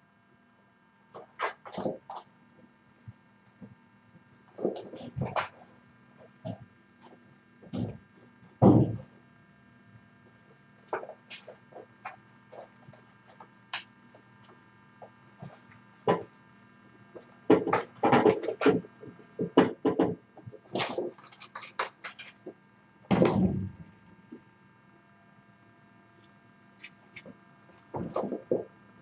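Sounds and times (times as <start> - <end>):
faint steady hum: 0.0 - 29.0
knocks scrapes and rustling: 17.2 - 22.6.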